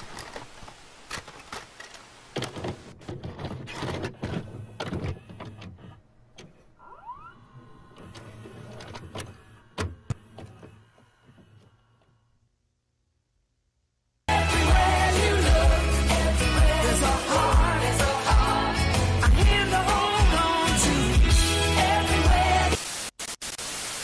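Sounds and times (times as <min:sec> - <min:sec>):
mechanical clicks and clunks: 0:00.0 - 0:12.2
motor whirring: 0:04.0 - 0:12.3.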